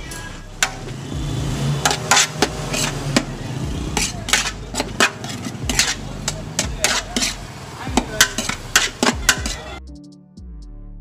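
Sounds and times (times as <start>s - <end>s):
metal spoon scraping pot: 0.6s - 1.0s, 1.8s - 9.8s.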